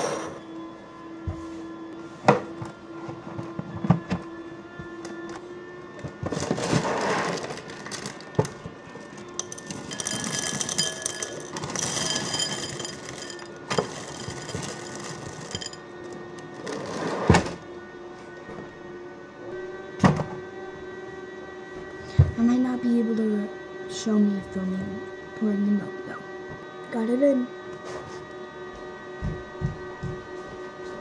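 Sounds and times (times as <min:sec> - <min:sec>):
dishware clinking: 0:09.4 - 0:15.8.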